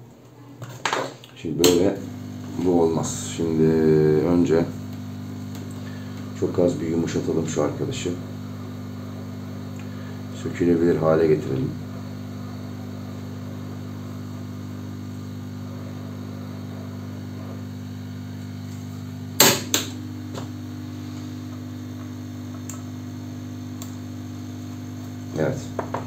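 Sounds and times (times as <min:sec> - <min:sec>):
low electrical hum: 0:00.0 - 0:26.0.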